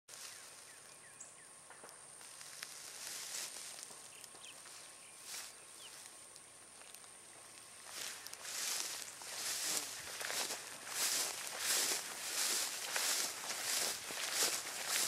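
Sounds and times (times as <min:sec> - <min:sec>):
faint steady hiss: 0:00.1 - 0:15.0
rustling noise: 0:02.3 - 0:06.2, 0:07.8 - 0:15.0.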